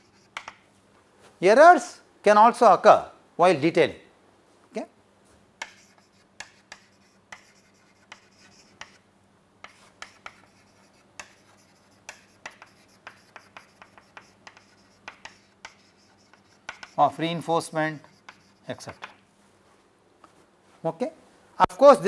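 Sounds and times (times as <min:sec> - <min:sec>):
chalk tapping and scratching: 0:00.0 - 0:00.6, 0:05.6 - 0:09.0, 0:09.6 - 0:19.2.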